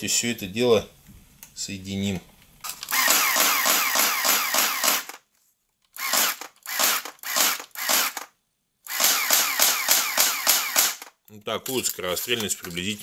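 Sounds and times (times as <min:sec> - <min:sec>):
toy blaster firing full auto: 0:02.7 - 0:05.2, 0:06.0 - 0:08.3, 0:08.9 - 0:11.2.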